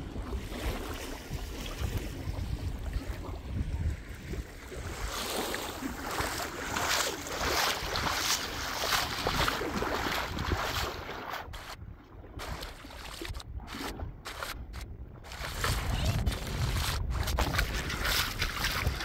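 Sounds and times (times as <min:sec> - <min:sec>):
sea water washing ashore: 0:00.0 - 0:19.0
wind rumbling on microphone: 0:00.0 - 0:19.0.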